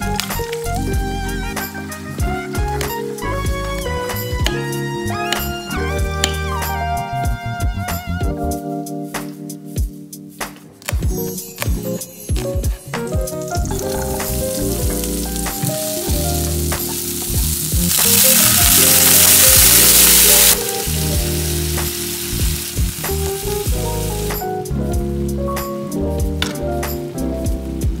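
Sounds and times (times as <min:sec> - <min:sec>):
background music: 0:00.0 - 0:28.0
water hissing in hot oil: 0:13.4 - 0:24.6.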